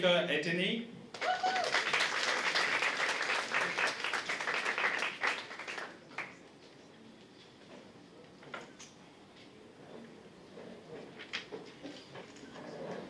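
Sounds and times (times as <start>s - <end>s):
audience applauding: 1.2s - 6.4s.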